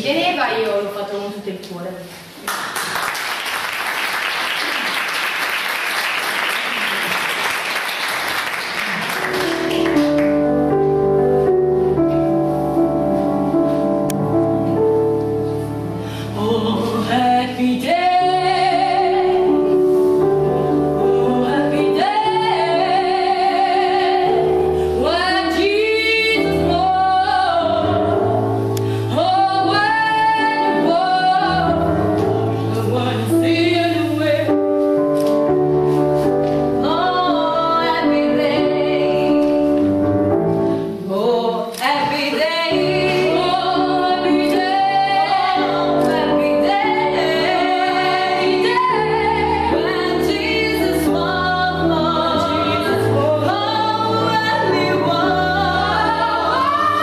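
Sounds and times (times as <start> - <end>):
audience applause: 2.5 - 10.4
keyboard chords: 9.2 - 16.8
vocal quartet singing in harmony: 21.0 - 33.4, 41.7 - 57.0.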